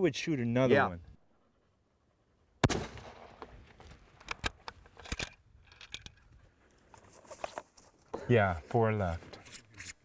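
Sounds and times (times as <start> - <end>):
rifle shot: 2.6 - 3.5
rifle bolt metallic clicks: 4.2 - 6.3.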